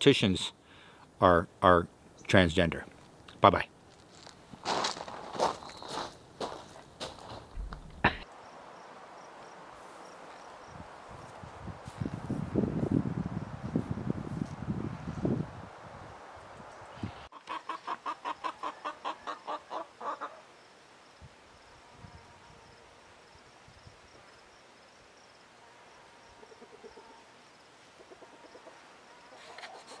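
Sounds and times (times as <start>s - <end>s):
chicken clucking: 17.3s - 20.4s, 28.0s - 30.0s.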